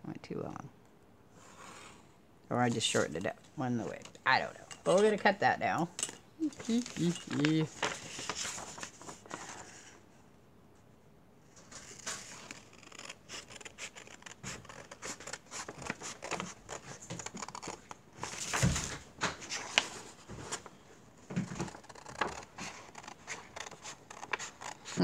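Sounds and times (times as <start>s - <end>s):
paper rustling: 6.4s - 10.0s, 11.5s - 25.0s
scissors snipping paper: 11.9s - 17.9s, 21.5s - 25.0s.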